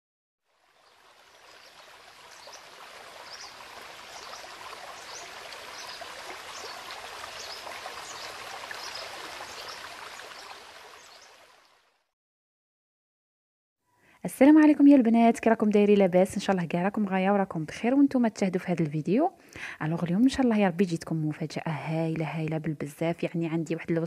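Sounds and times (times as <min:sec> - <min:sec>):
stream flowing: 0:00.5 - 0:12.1.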